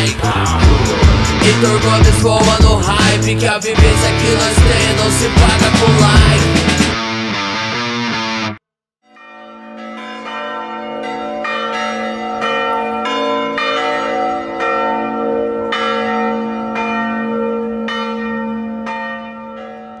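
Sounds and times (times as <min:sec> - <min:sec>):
church bells ringing: 0:09.1 - 0:20.0.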